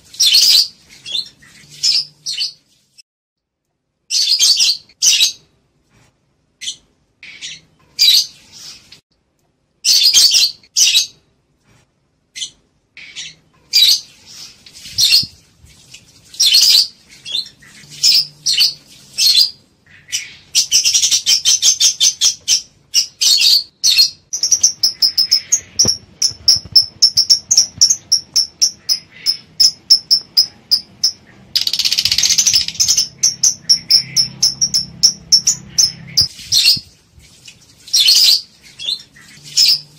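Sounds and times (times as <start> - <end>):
lovebirds chirping: 0.0 - 3.0, 6.6 - 9.0, 12.3 - 15.4, 16.3 - 37.0, 37.8 - 39.9.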